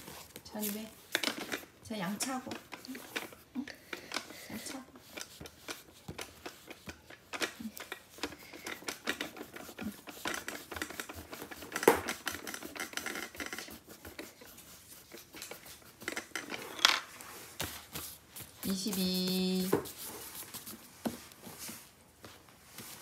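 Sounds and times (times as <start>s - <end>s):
eraser rubbing on paper: 7.5s - 16.4s, 17.6s - 20.9s.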